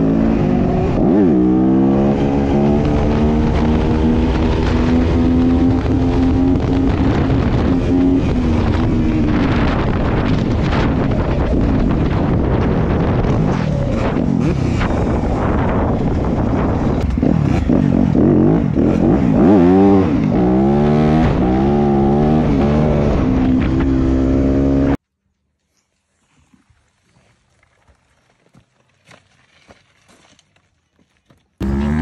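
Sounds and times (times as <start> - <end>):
dirt bike engine revving: 0.0 - 10.9, 12.0 - 25.0, 31.6 - 32.0.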